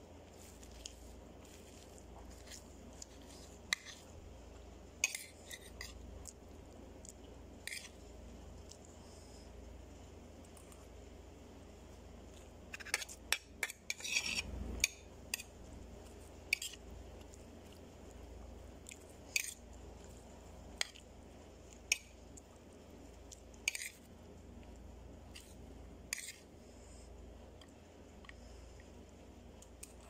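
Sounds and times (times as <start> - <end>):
spoon scraping ceramic plate: 12.7 - 14.9.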